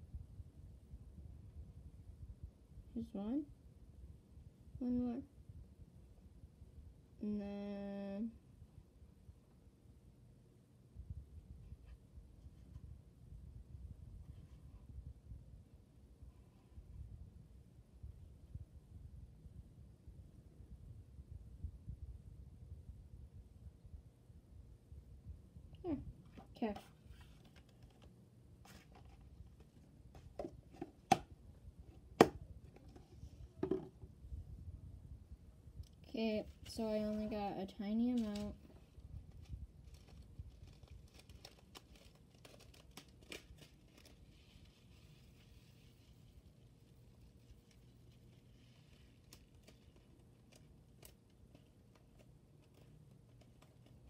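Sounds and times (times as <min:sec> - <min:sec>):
plastic container knocks and rubs: 0:32.2 - 0:34.1
faint clicks and taps: 0:47.5 - 0:54.0.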